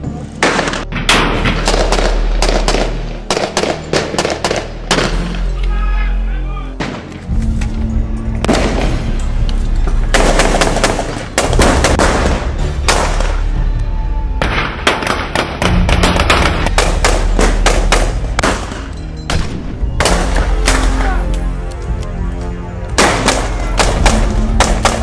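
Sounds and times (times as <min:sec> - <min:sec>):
low music: 0:00.0 - 0:25.0
rifle gunfire: 0:00.4 - 0:05.2, 0:10.1 - 0:13.4, 0:14.6 - 0:20.9.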